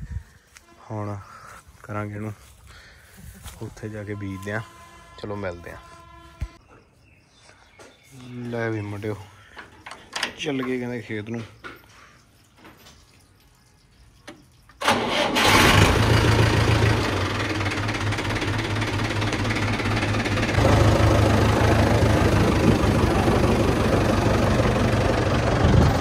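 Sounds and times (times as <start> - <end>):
vehicle engine starting and running: 14.8 - 26.0.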